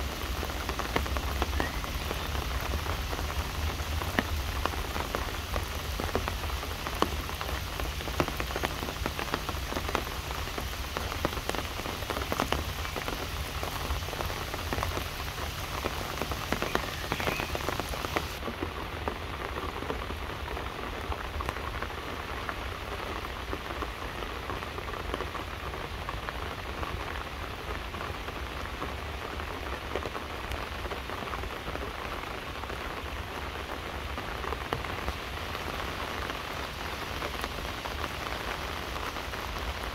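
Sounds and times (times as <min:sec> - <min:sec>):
rain falling on leaves: 0:00.0 - 0:39.9.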